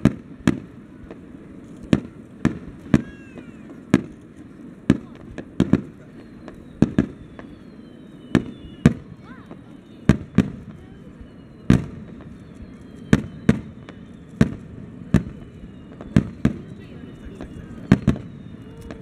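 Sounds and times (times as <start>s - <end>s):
firework shells bursting: 0.0s - 9.2s.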